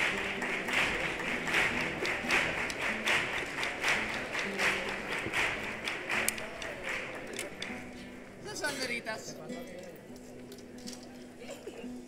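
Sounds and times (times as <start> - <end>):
audience clapping in time: 0.0 - 7.9.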